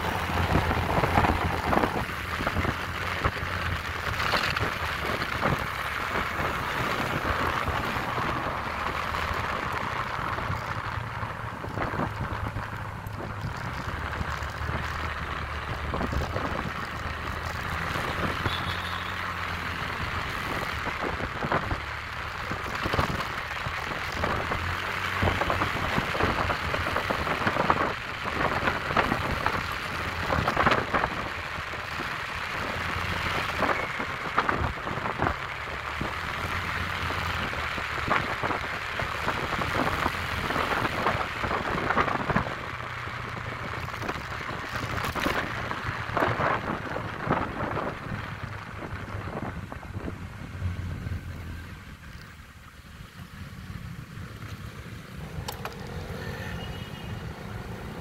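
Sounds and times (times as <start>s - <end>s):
wind buffeting microphone: 0.0s - 18.4s, 36.0s - 51.4s
scooter engine hum: 0.0s - 33.0s, 44.0s - 58.0s.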